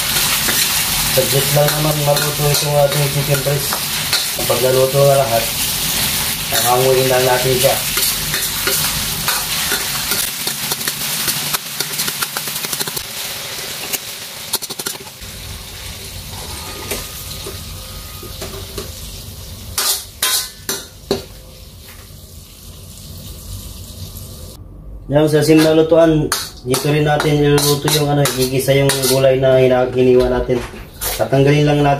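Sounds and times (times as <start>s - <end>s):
chicken sizzling in hot oil: 0.0s - 24.6s.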